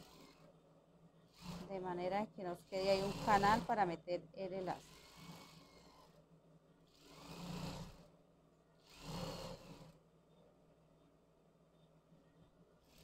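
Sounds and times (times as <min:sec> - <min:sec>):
sewing machine stitching: 0:00.0 - 0:00.5, 0:01.3 - 0:02.0, 0:02.6 - 0:03.8, 0:04.6 - 0:06.2, 0:06.9 - 0:08.1, 0:08.8 - 0:10.0.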